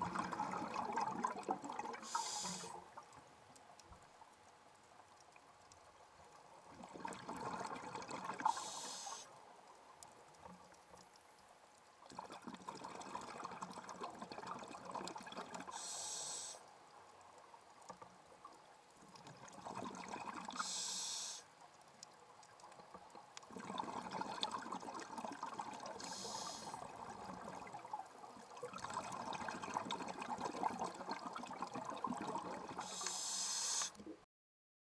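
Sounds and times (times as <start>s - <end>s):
bubbling gurgling air: 0.0s - 2.7s, 6.8s - 9.0s, 12.2s - 15.9s, 23.5s - 27.8s, 28.6s - 34.2s
diver breathing through regulator: 2.0s - 2.8s, 8.5s - 9.3s, 15.7s - 16.6s, 20.6s - 21.5s, 26.0s - 26.8s, 32.8s - 34.0s.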